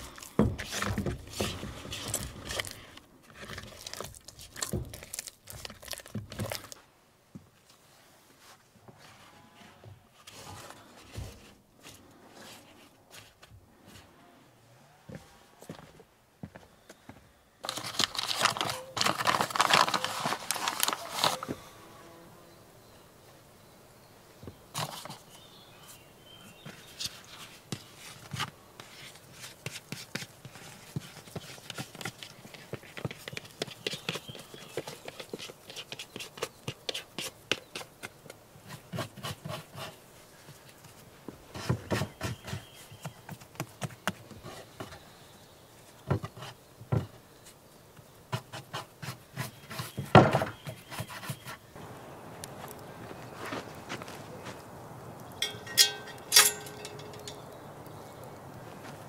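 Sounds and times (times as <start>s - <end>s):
paper bag rustling: 17.6s - 21.6s
dough worked on wooden board: 26.7s - 45.0s, 48.3s - 51.7s.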